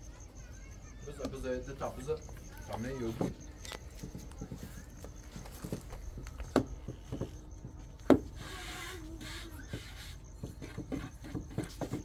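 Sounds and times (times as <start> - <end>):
light tapping and rubbing: 3.0 - 12.0.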